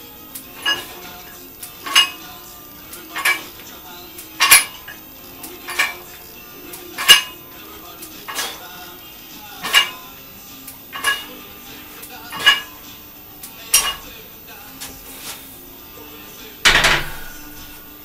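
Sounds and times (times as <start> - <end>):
metal gym equipment clinking: 0.5 - 3.6, 4.4 - 6.2, 6.9 - 7.4, 9.6 - 10.1, 10.9 - 11.4, 12.2 - 12.8, 13.7 - 14.1, 16.6 - 18.0.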